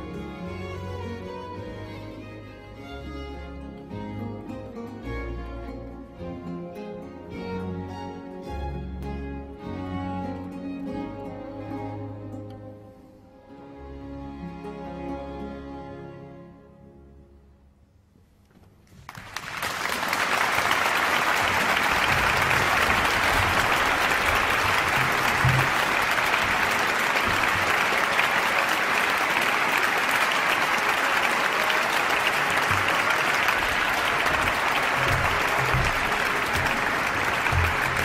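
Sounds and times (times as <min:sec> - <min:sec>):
audience applauding in a church: 0:19.0 - 0:38.0.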